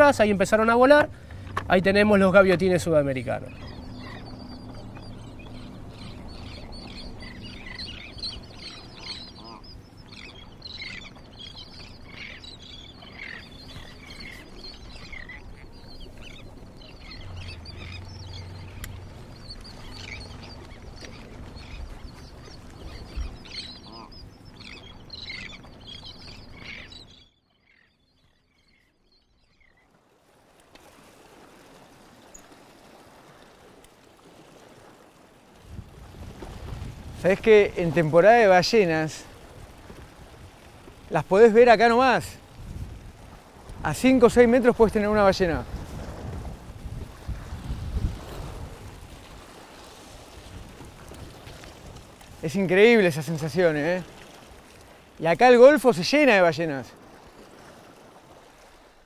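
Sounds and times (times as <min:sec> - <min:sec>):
boat motor idling: 0:00.0 - 0:13.4, 0:16.2 - 0:26.7
terns calling with high cries: 0:03.5 - 0:29.8.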